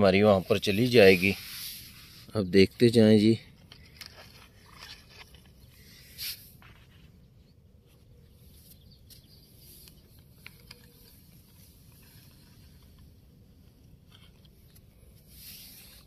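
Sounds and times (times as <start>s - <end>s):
toy truck wheels scraping sand: 0.0s - 3.3s, 3.9s - 7.0s, 14.0s - 16.0s.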